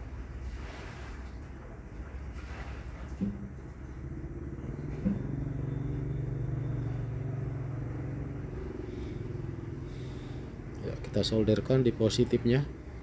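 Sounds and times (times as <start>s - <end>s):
vehicle engine humming: 3.3s - 13.0s.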